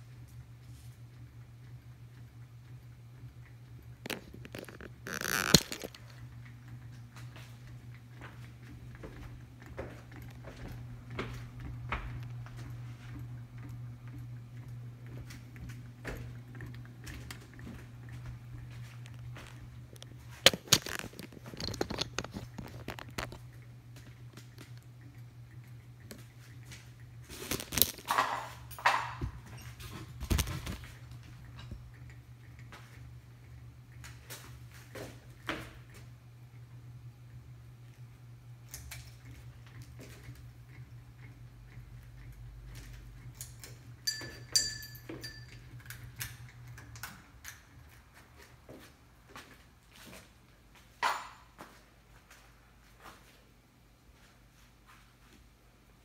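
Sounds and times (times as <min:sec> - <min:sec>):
ceiling fan motor hum: 0:00.0 - 0:56.0
sharp clicks and crackly rustles: 0:00.1 - 0:36.7, 0:37.3 - 0:44.2, 0:45.0 - 0:50.3
sharp ringing clinks: 0:44.0 - 0:45.6.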